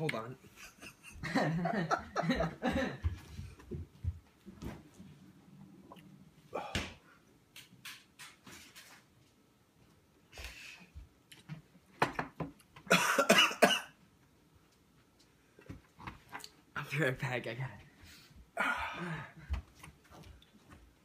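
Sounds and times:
man coughing: 12.9 - 14.0.

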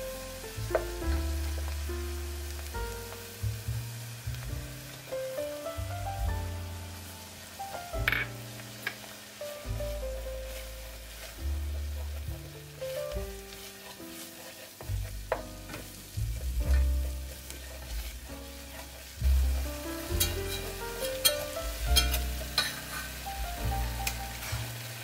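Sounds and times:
instrumental music with deep bass: 0.0 - 13.6, 14.8 - 25.0
light sizzle: 0.0 - 25.0
whisking in a metal pot: 9.9 - 15.4, 16.0 - 25.0.

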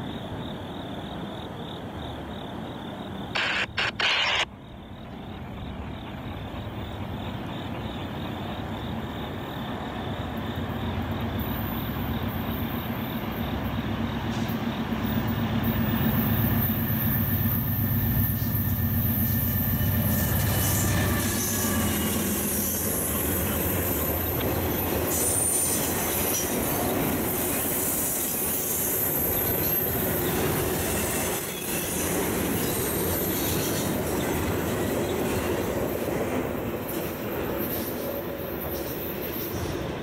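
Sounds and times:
sudden loud burst of noise: 3.4 - 4.5
diesel locomotive engine rumble: 4.9 - 40.0
train wheel noise: 5.2 - 40.0.

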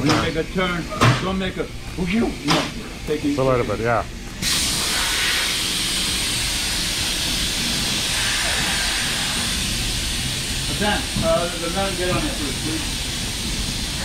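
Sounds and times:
men talking: 0.0 - 4.1, 10.7 - 12.9
compressed air hissing: 4.4 - 14.0.

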